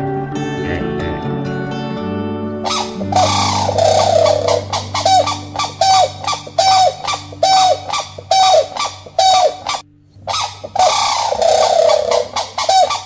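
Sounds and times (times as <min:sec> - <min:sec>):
cranes honking: 0:02.6 - 0:13.0.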